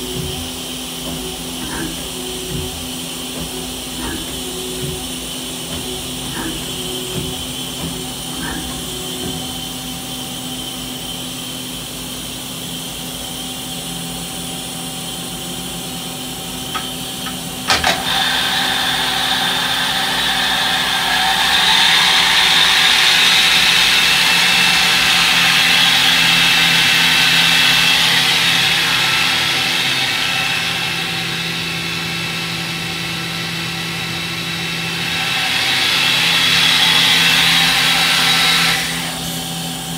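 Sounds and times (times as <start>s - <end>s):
machine clunk: 0.0s - 9.9s, 16.8s - 18.1s
machine hum: 0.0s - 39.9s
spindle high whine: 0.0s - 39.9s.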